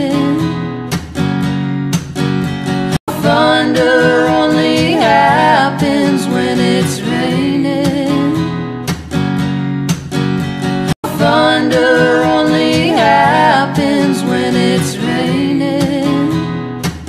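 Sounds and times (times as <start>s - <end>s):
person singing: 0.0s - 0.6s, 3.1s - 8.6s, 11.0s - 16.6s
strummed acoustic guitar: 0.0s - 17.0s.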